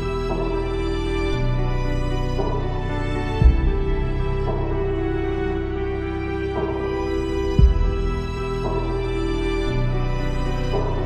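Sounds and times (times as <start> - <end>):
sad slow chord music: 0.0 - 11.0.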